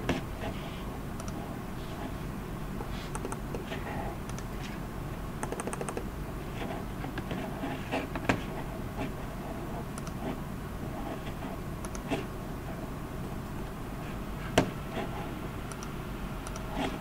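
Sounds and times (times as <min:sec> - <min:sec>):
keyboard and mouse clicks: 0:01.2 - 0:01.4, 0:03.1 - 0:04.5, 0:05.4 - 0:06.1, 0:10.0 - 0:10.2, 0:11.8 - 0:12.2, 0:15.7 - 0:17.0.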